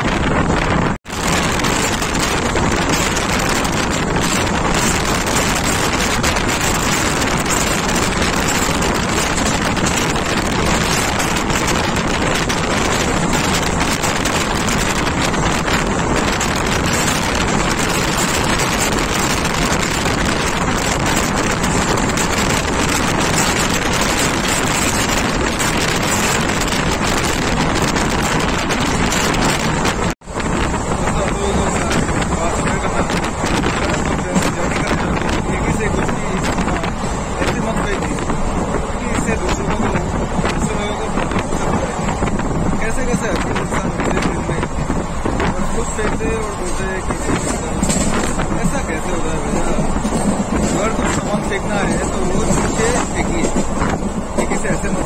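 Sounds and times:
moving passenger train: 0:00.0 - 0:55.0
wind rushing over microphone: 0:00.0 - 0:55.0.

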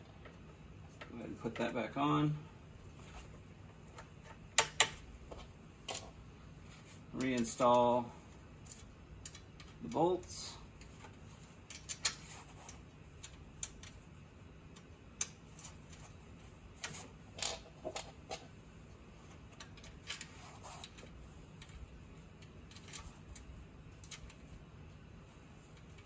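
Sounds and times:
metallic clicks of bolts and tools: 0:08.6 - 0:10.0, 0:11.7 - 0:14.0.

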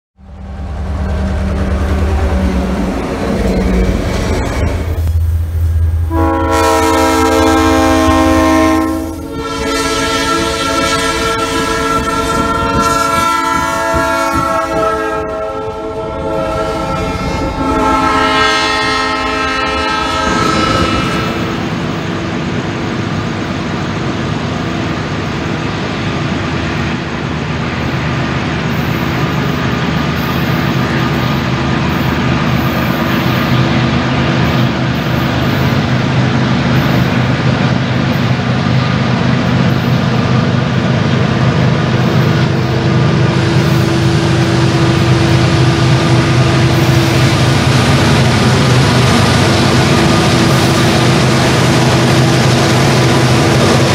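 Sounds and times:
diesel train rumbling on track: 0:00.2 - 0:53.9
locomotive air horn blasts: 0:06.1 - 0:21.7.

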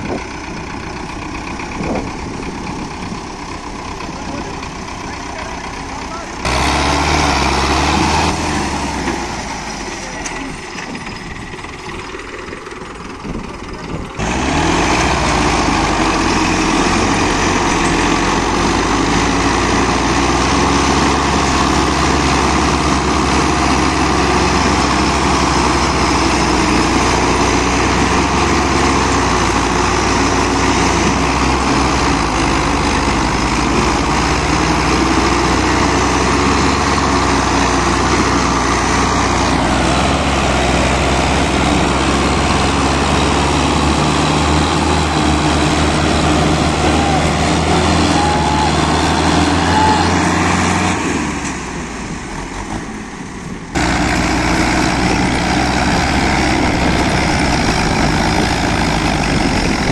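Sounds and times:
tractor engines running hard: 0:00.0 - 0:59.9.

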